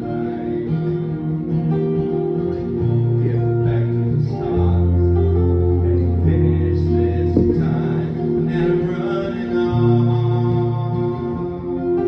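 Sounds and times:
acoustic guitars: 0.0s - 12.0s
held low keyboard notes: 3.8s - 10.1s
deep held bass note: 7.4s - 8.4s.

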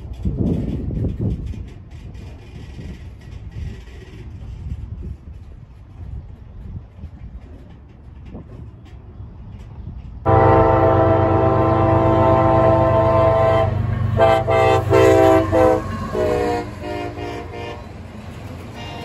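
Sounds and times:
locomotive air horn: 10.3s - 18.0s, 18.8s - 19.0s.

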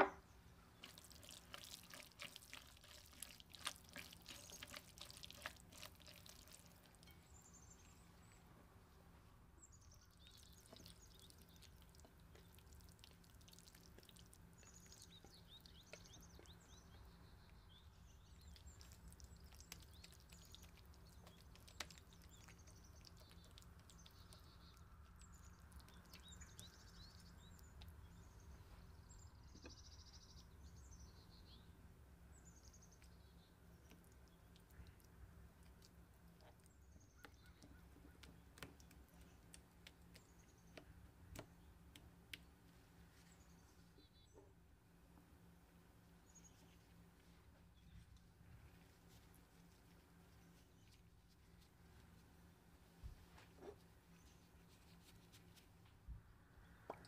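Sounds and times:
low steady hum: 0.0s - 57.0s
spatula stirring wet salad: 0.8s - 7.2s, 10.2s - 16.8s, 18.2s - 28.0s
faint bird chirps: 36.4s - 40.9s.

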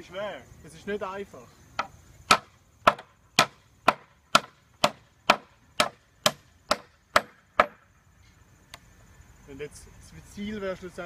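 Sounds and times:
hammer striking wooden slats: 1.8s - 7.8s.

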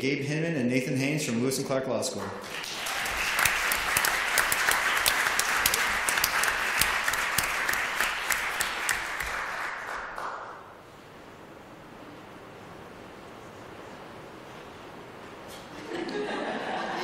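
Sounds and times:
audience applauding: 2.2s - 10.8s.

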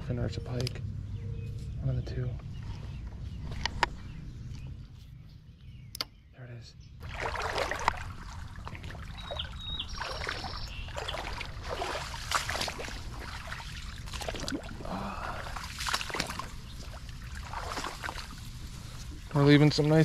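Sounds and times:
steady low rumble: 0.0s - 20.0s
water splashing and sloshing: 7.0s - 20.0s.

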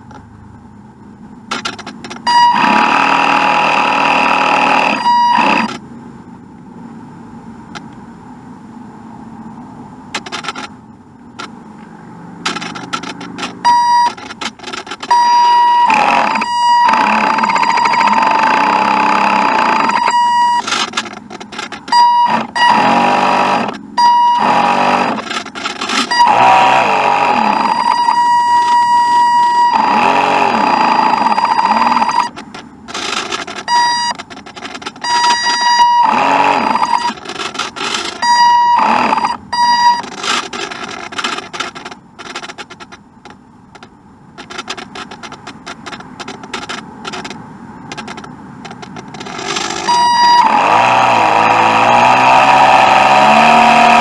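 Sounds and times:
crackling and clicking noise: 1.5s - 5.8s, 10.1s - 28.9s, 29.5s - 54.0s
electric boat motor whining: 1.5s - 5.8s, 12.5s - 42.8s, 48.8s - 54.0s
high electronic beeping: 1.5s - 5.8s, 12.5s - 41.9s, 45.8s - 51.6s.

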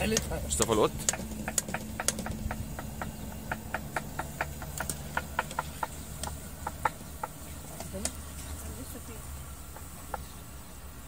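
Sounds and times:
crackling pops: 0.0s - 8.2s
low steady hum: 0.0s - 11.0s.

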